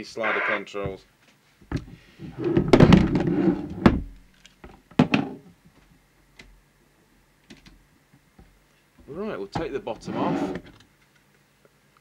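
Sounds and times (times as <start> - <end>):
metal case scraping on workbench: 2.3 - 3.8, 9.9 - 10.7
cables dragging: 10.0 - 10.6.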